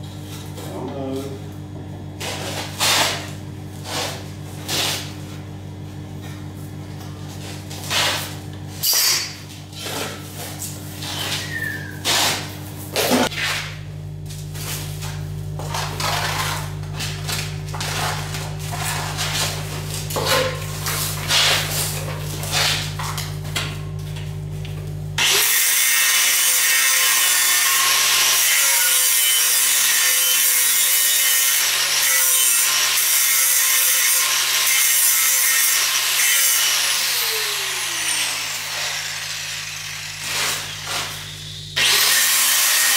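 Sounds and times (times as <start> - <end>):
steady low hum: 0.0 - 25.2
knocks and scrapes: 7.3 - 23.6
angle grinder grinding steel: 25.2 - 42.9.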